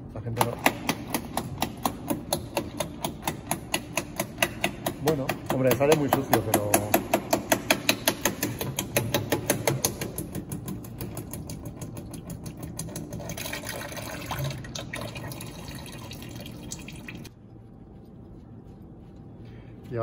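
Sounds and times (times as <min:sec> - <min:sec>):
oil pouring and splashing: 0:10.3 - 0:17.3.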